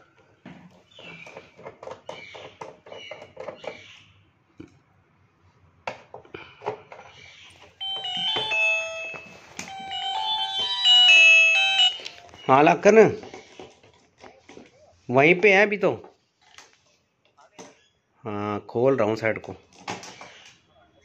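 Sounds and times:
phone ringtone melody: 7.8 - 12.7.

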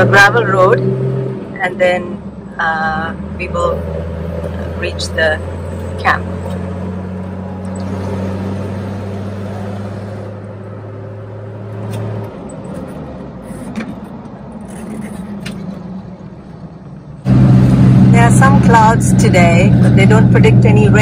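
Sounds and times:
car engine hum: 0.0 - 21.0.

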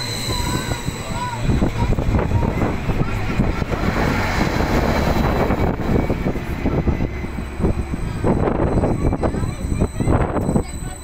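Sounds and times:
faint high whine: 0.0 - 3.8
train engines droning: 0.0 - 11.0
wind buffeting microphone: 0.1 - 11.0.

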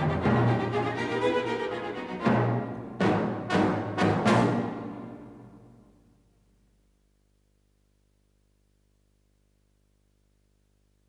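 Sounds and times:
faint low hum and hiss: 5.0 - 11.0.

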